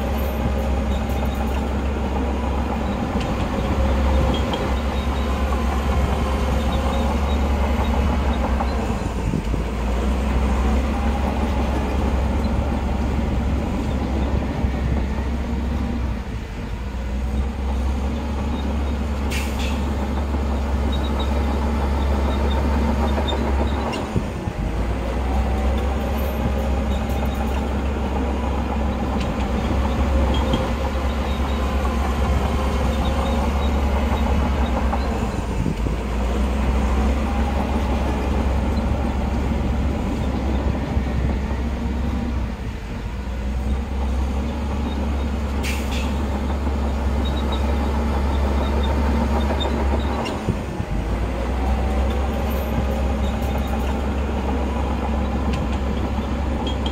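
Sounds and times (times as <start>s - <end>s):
diesel machinery engine drone: 0.0s - 56.9s.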